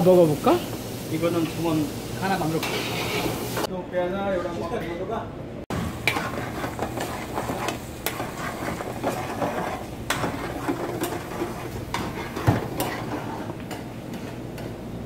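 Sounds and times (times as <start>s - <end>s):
metal spoon stirring in metal pan: 2.5s - 3.7s, 5.7s - 14.8s
pots and utensils clinking: 5.7s - 14.8s.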